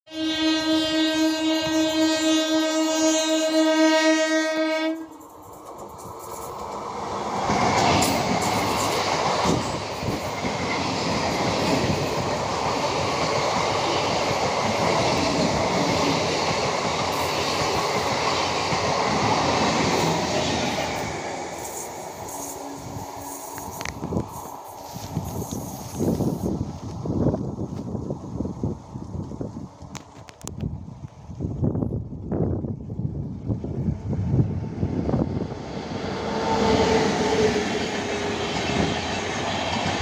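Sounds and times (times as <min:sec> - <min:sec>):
train horn: 0:00.1 - 0:05.2
electric train passing: 0:00.2 - 0:40.0.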